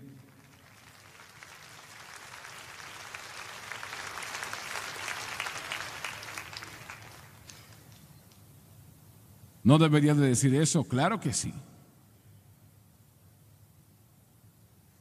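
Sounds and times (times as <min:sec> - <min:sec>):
congregation applauding: 0:00.0 - 0:08.0.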